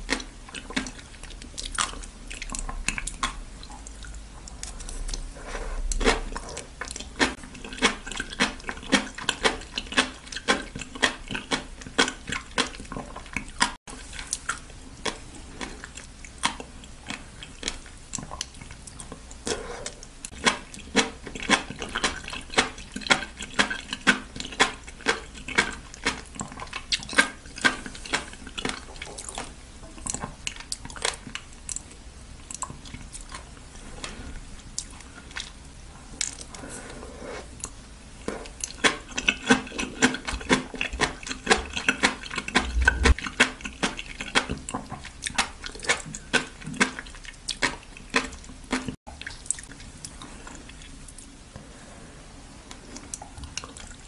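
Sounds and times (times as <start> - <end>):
wet clicks and pops of chewing: 0.0 - 5.2, 5.9 - 15.2, 15.8 - 19.4, 20.2 - 33.5, 38.5 - 51.3
slurpy mouth sounds: 38.4 - 51.0.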